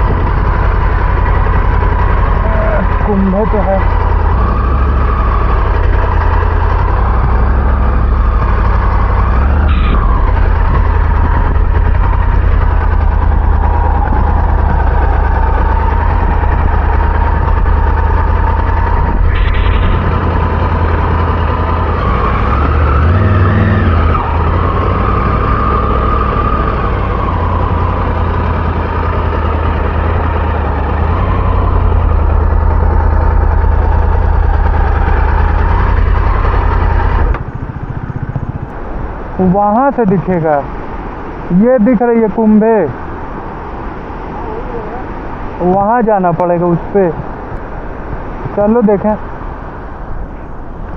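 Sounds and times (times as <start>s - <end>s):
motorcycle engine running: 0.0s - 50.9s
wind rumble on microphone: 0.0s - 50.9s.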